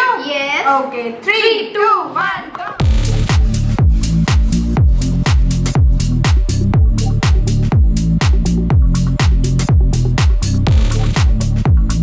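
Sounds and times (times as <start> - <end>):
electronic dance music: 2.6 - 12.0.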